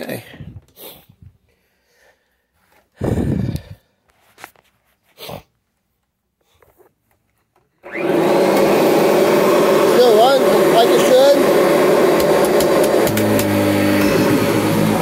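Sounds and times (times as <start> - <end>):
vacuum cleaner motor running: 7.8 - 15.0.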